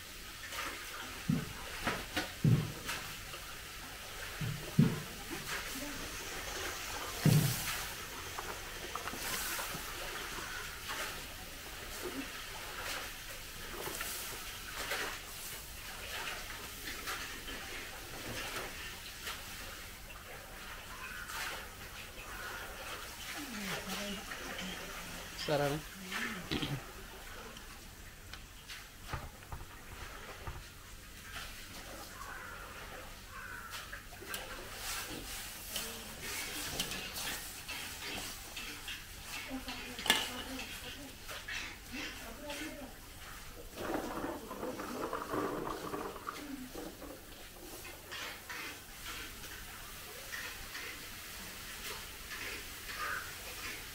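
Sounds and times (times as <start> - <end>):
faint animal call: 52.9 - 53.7.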